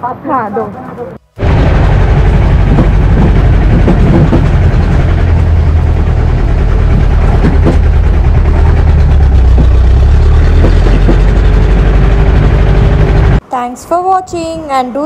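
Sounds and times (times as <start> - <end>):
vehicle engine driving: 0.0 - 13.4
knocks and rattles from bumps: 2.6 - 5.4, 6.9 - 12.3.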